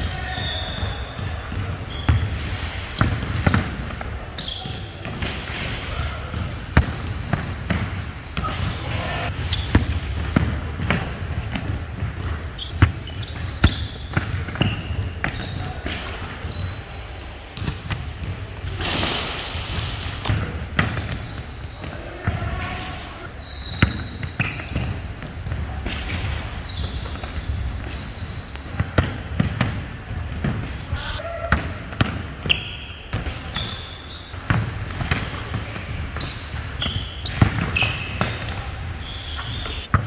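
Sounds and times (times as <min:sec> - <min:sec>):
sneaker squeaks on hardwood: 0:00.1 - 0:10.3, 0:11.4 - 0:18.0, 0:20.3 - 0:28.7, 0:30.3 - 0:35.1, 0:36.1 - 0:40.0
basketball bouncing on wooden floor: 0:09.3 - 0:16.6.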